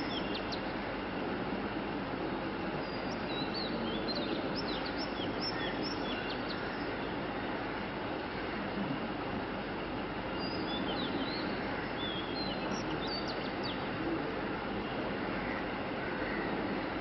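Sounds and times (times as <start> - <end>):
small birds chirping: 0.0 - 0.8, 2.8 - 7.4, 10.2 - 15.6
outdoor background noise: 0.0 - 17.0.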